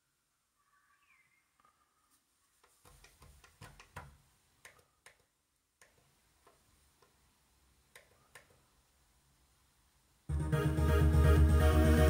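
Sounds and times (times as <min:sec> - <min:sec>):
computer mouse clicks: 0:07.9 - 0:08.6.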